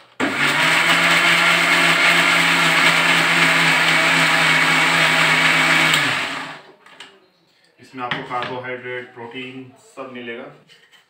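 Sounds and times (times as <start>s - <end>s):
mixer grinder motor hum: 0.1s - 6.7s.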